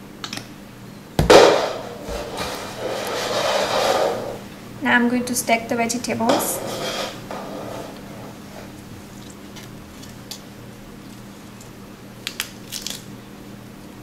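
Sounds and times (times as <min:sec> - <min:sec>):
lettuce leaves crinkling: 0:08.7 - 0:13.1.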